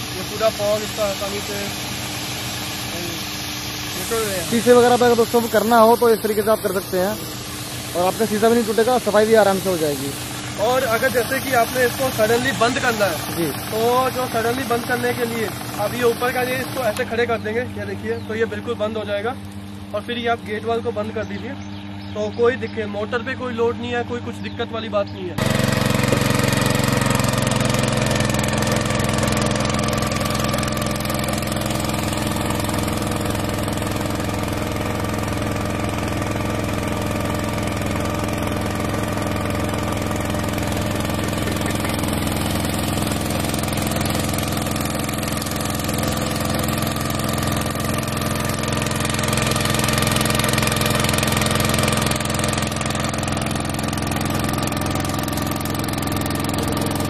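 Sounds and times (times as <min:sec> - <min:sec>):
petrol engine running steadily: 0:00.0 - 0:57.0.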